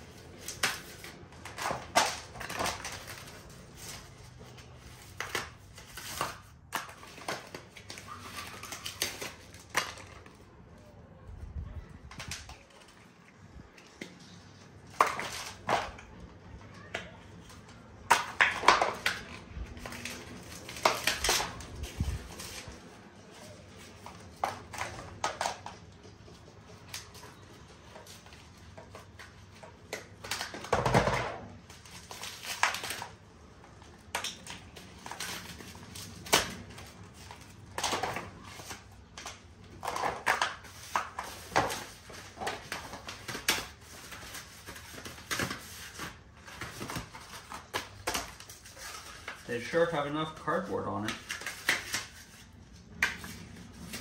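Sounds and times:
cardboard crinkling and tearing: 0.0 - 10.5, 17.5 - 25.7, 31.5 - 52.6.

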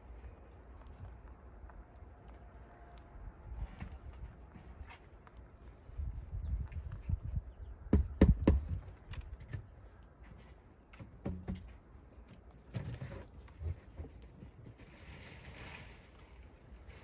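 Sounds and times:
rabbits hopping in wooden hutch: 8.3 - 17.0.

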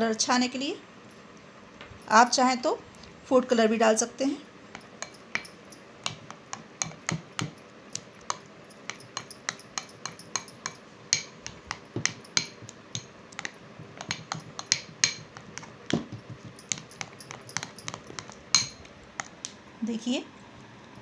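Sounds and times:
spoon scraping glass bowl: 4.8 - 7.5, 8.2 - 12.7, 16.4 - 18.8.

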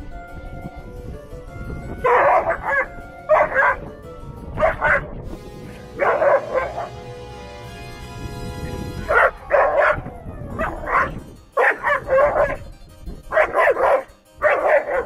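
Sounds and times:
background music: 0.0 - 15.0
dog barking: 2.0 - 3.8, 4.6 - 5.1, 6.0 - 6.9, 9.1 - 10.0, 10.6 - 12.6, 13.3 - 15.0.

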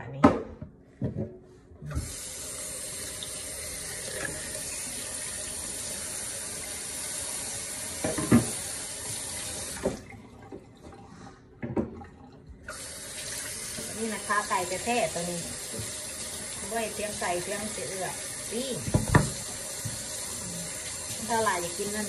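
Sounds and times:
tap running into metal sink: 8.0 - 8.8, 18.8 - 20.2.

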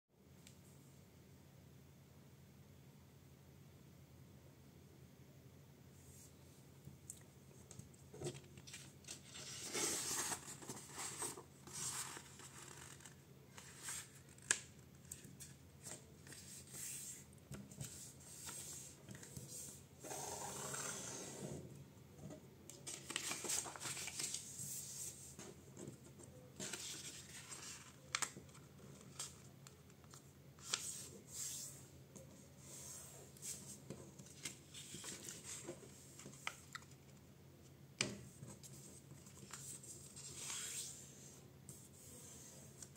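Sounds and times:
paper rustling: 8.2 - 19.7, 22.7 - 31.6.

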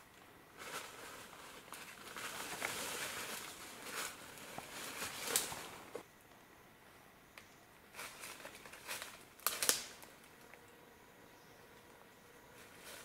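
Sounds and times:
footsteps crunching dry leaves: 0.6 - 6.0.

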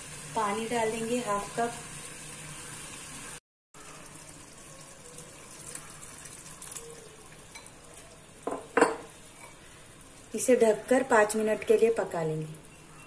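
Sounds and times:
water pouring into a pan: 0.0 - 8.3.

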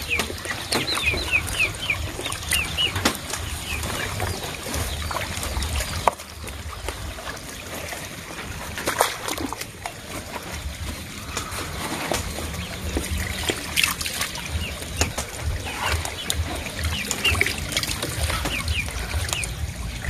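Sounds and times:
sharp water splashes: 0.0 - 20.0
water sloshing and splashing: 0.0 - 20.0.

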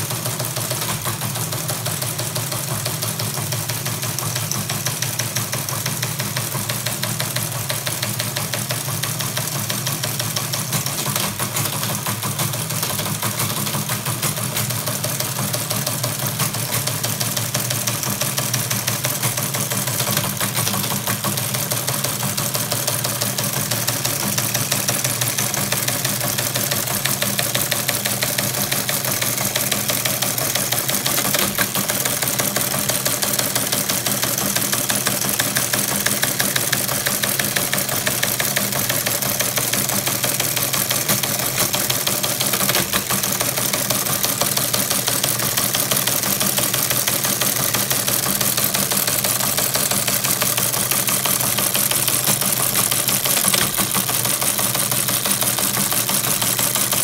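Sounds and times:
teletype clattering: 0.0 - 57.0.

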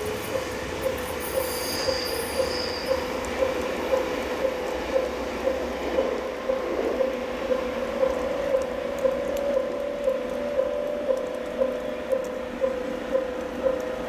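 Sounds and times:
electric train on rails: 0.0 - 14.0
pulsing ringing tone: 0.2 - 13.8
high wheel squeal: 0.3 - 3.2.

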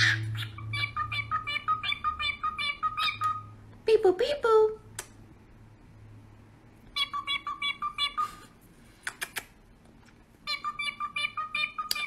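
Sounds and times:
cockatiel chirping: 0.0 - 3.6, 6.9 - 8.4, 10.4 - 12.0.

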